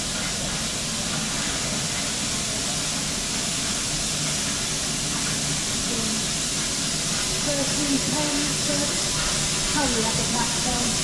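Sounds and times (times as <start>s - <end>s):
steam locomotive hissing steam: 0.0s - 11.0s.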